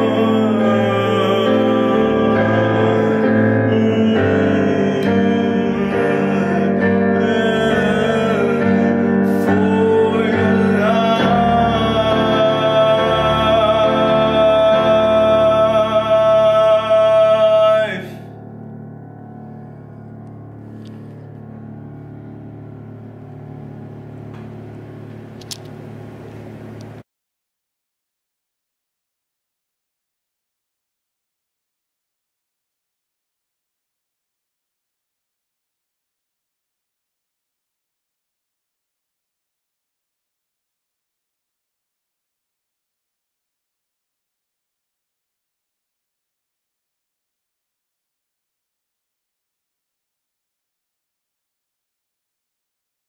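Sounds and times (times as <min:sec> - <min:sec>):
piano keyboard chords and melody: 0:00.0 - 0:27.0
sharp click: 0:25.4 - 0:25.8.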